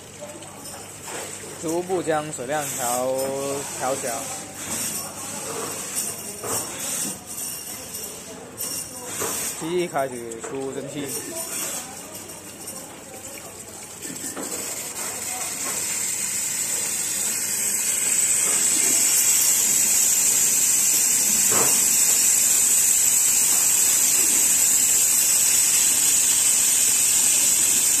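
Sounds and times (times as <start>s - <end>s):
steam cleaner hissing: 14.2s - 28.0s.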